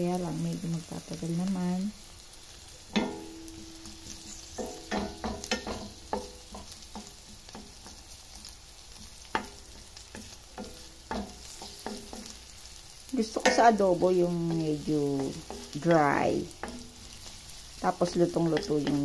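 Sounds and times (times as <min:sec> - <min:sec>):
onions sizzling in oil: 0:00.0 - 0:19.0
pan ringing: 0:02.8 - 0:06.5
wooden spoon knocking on pan: 0:02.9 - 0:08.1, 0:08.9 - 0:12.4, 0:13.4 - 0:17.0, 0:18.0 - 0:19.0.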